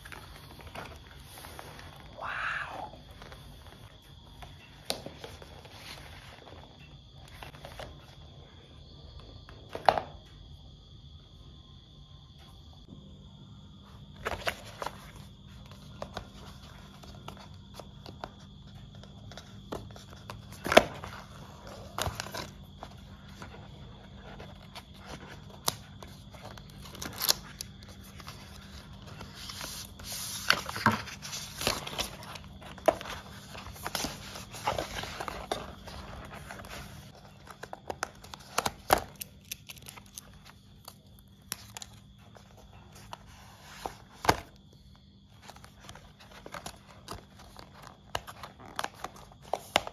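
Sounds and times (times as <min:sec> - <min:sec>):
faint steady hum: 0:00.0 - 0:49.9
paper rustling and scraping: 0:04.6 - 0:08.1, 0:14.2 - 0:44.6.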